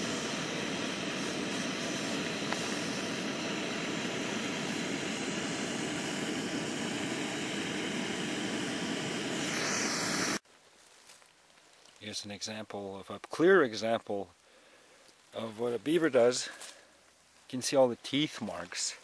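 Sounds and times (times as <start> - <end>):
steady rushing noise: 0.0 - 10.4.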